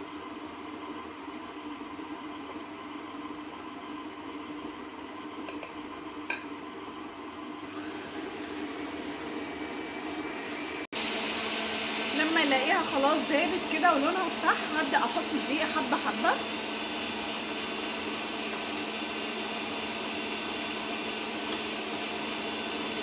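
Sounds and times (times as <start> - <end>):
stand mixer motor running: 6.7 - 23.0.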